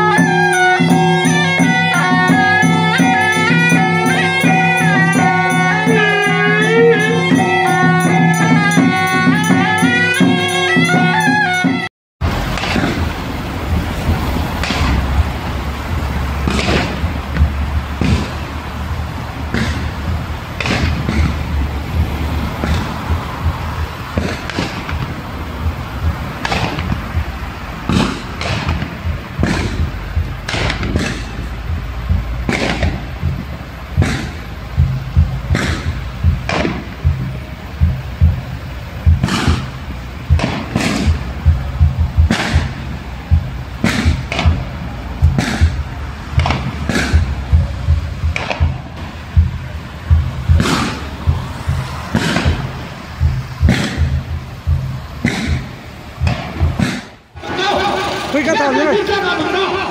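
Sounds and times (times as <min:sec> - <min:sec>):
sharp bangs: 0:00.0 - 0:59.9
vehicle rumble on road: 0:12.2 - 0:59.9.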